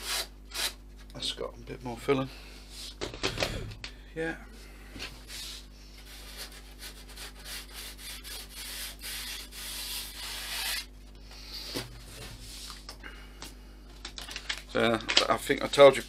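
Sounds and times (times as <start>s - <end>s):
hand sanding rubbing strokes: 5.2s - 12.8s.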